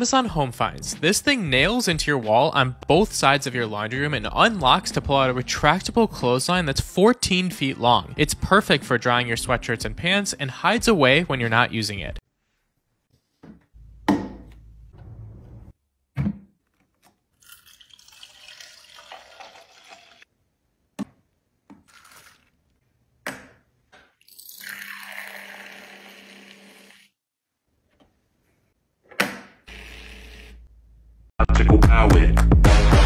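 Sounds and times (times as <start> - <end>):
liquid splashing pour: 17.4 - 20.3, 21.9 - 22.6, 24.2 - 26.2.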